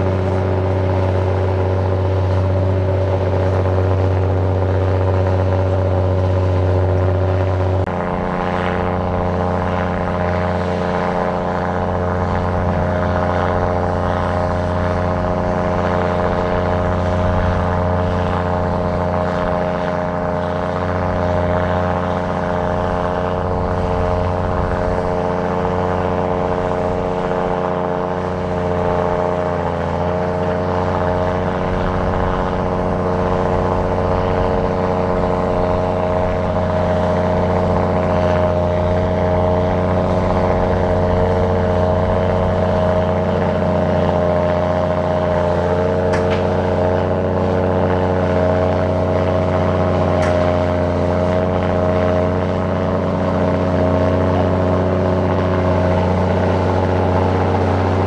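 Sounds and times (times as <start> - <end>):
heavy diesel engine running: 0.0 - 58.0.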